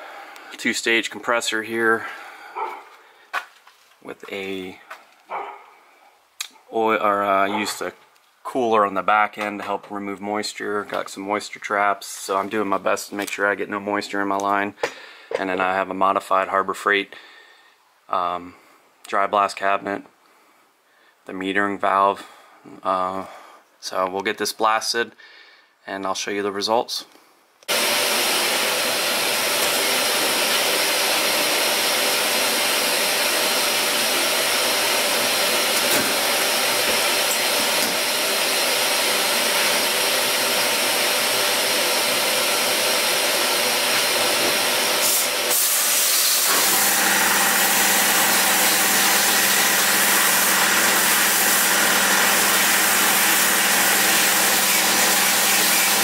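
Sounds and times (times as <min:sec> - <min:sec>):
rushing hiss of blasting air: 0:45.0 - 0:56.0.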